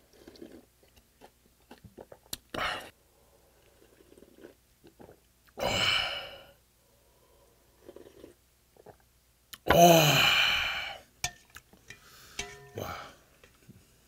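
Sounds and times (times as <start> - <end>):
soft gulps: 0.0 - 3.0, 3.6 - 5.6, 7.8 - 9.1
man slurping broth: 3.7 - 5.2, 7.8 - 9.0
man sighing ahh: 5.6 - 6.5, 9.7 - 11.0, 12.8 - 13.2.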